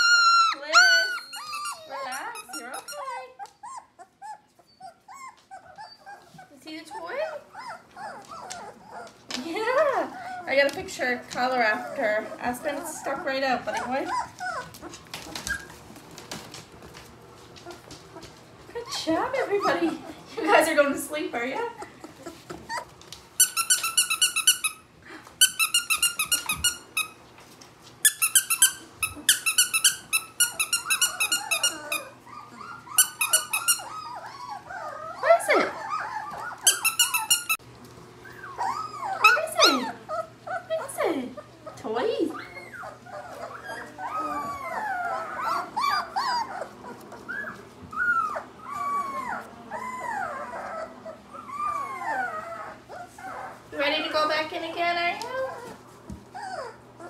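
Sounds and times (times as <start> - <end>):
squeaky toy squeaking: 0.0 - 3.8, 23.4 - 24.8, 25.4 - 27.2, 28.0 - 32.1, 32.9 - 33.9, 36.6 - 37.6
puppy whimpering: 0.0 - 16.8, 17.4 - 27.2, 28.1 - 57.0.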